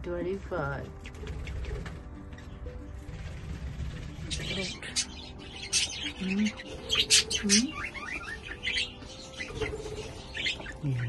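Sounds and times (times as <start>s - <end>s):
budgerigars chirping: 0.9s - 11.0s.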